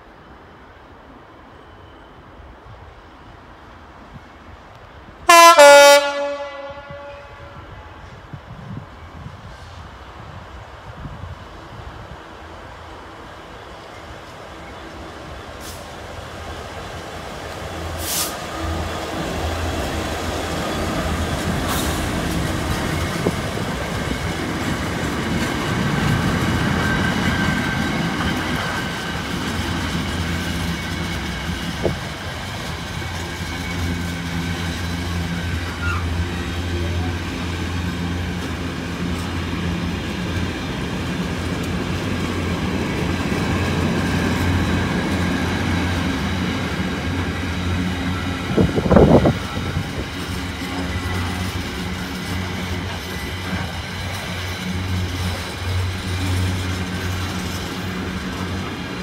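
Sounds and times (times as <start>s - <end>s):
diesel locomotive engine: 0.0s - 59.0s
wheels clacking over rail joints: 16.3s - 59.0s
rolling rumble of wagons: 20.8s - 59.0s.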